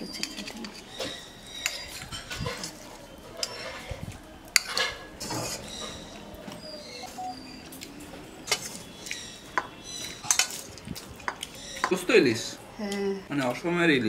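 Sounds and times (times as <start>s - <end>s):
metal spoon clinking on dishes: 0.0s - 3.9s, 4.5s - 6.0s, 8.5s - 12.0s.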